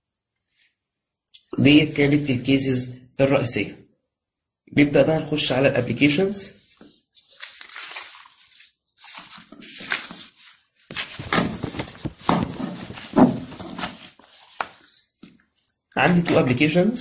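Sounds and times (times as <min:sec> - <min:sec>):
paper rustling on wooden table: 0:06.6 - 0:16.4.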